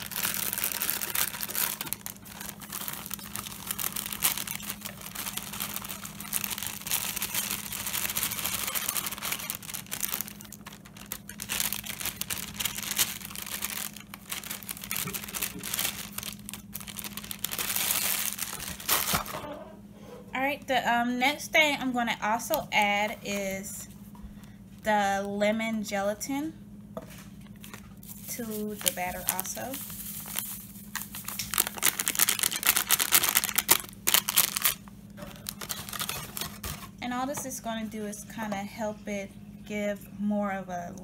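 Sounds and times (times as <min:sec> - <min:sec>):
plastic bag crinkling: 0:00.0 - 0:19.5, 0:27.5 - 0:37.0.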